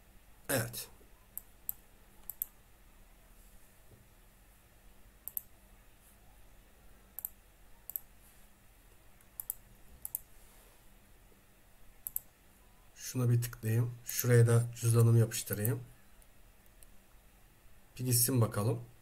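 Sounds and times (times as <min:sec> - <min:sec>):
faint hum: 0:00.0 - 0:19.0
mouse buttons clicking: 0:01.3 - 0:02.6, 0:05.2 - 0:05.5, 0:07.2 - 0:08.1, 0:09.2 - 0:10.3, 0:12.0 - 0:12.3.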